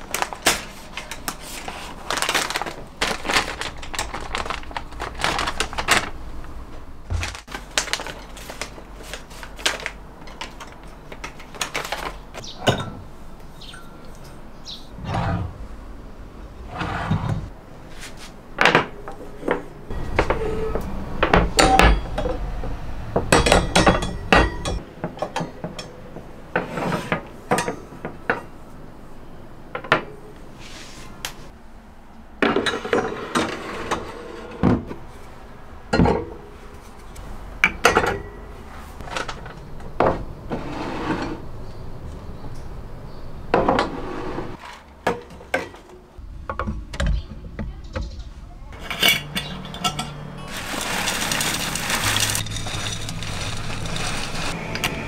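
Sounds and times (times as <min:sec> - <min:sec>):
glass jars clinking: 0:12.6 - 0:14.4, 0:23.3 - 0:26.0, 0:48.8 - 0:54.6.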